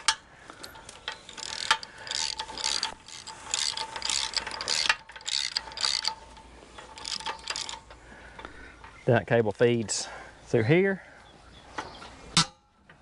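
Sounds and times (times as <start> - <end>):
ratchet wrench clicking: 0.0 - 8.0.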